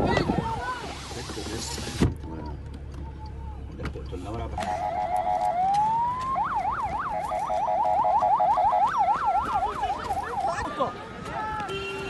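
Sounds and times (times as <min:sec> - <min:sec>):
electronic vehicle siren: 0:04.6 - 0:10.6.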